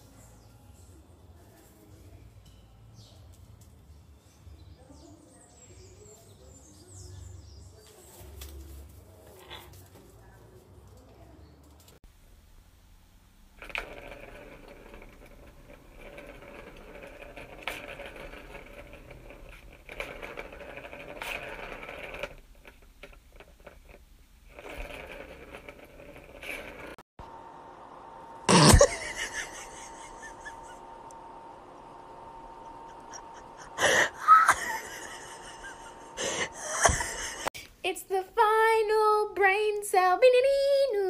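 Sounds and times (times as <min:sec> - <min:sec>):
ball rattling round plastic track: 0:13.5 - 0:27.0.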